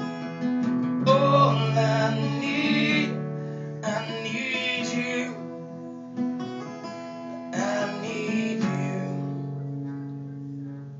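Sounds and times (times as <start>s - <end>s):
acoustic guitar strumming: 0.0s - 10.9s.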